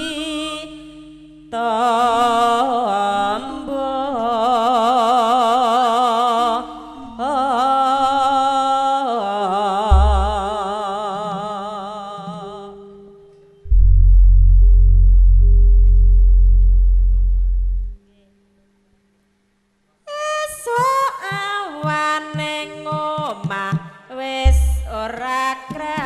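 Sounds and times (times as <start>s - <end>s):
woman singing with vibrato: 0.0s - 13.4s, 20.1s - 26.0s
deep gong stroke: 13.7s - 18.0s.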